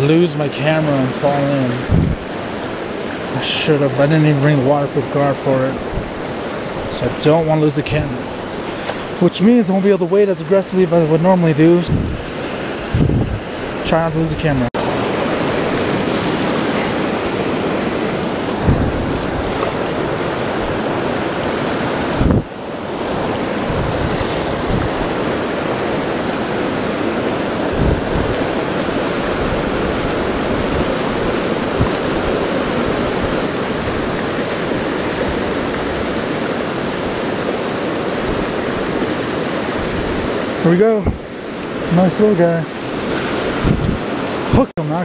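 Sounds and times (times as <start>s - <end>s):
whitewater rushing over boulders: 0.0s - 45.0s
low thumps: 1.8s - 2.2s, 12.9s - 13.4s, 18.4s - 20.0s.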